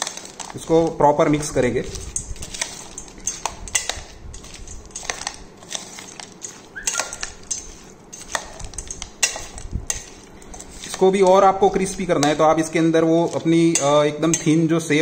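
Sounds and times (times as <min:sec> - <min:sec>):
spoon scraping metal bowl: 0:00.0 - 0:15.0.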